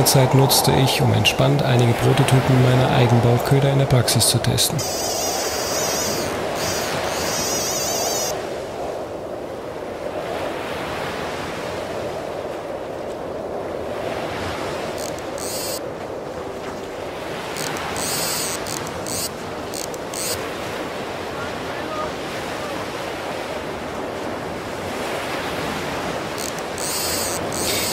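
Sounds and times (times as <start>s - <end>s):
surf breaking on sandy beach: 0.0s - 27.9s
high wavering whirr: 4.8s - 8.4s, 15.0s - 15.8s, 17.6s - 20.4s, 26.4s - 27.9s.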